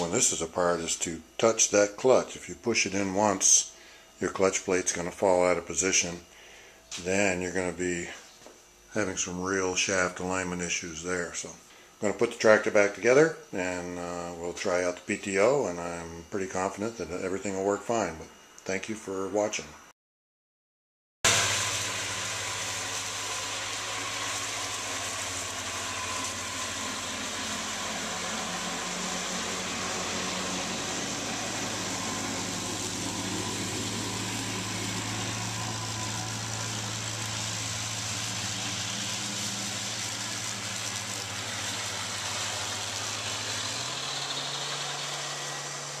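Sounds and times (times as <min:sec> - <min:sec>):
tractor engine running: 0:21.3 - 0:46.0.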